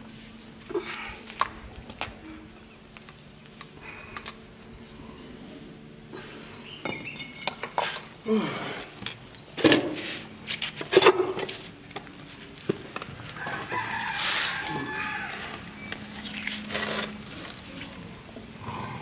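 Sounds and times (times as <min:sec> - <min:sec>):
chickens calling: 0:13.2 - 0:16.7
rooster crowing: 0:13.4 - 0:15.8.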